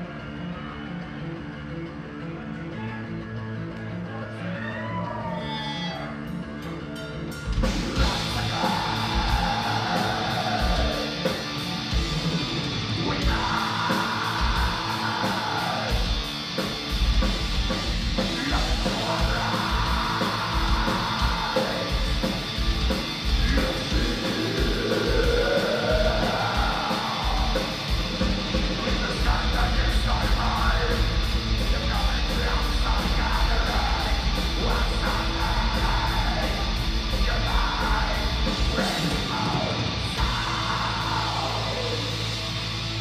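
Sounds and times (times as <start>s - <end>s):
distorted guitars: 0.0s - 43.0s
harsh screamed vocals: 4.1s - 6.3s, 8.0s - 16.9s, 18.2s - 43.0s
rapid drums: 7.3s - 43.0s.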